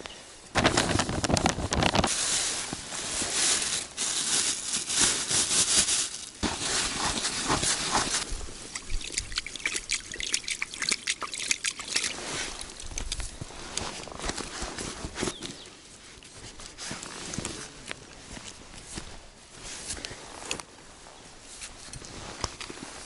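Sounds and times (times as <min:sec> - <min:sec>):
hands stirring crumbly mix: 0:05.0 - 0:13.8.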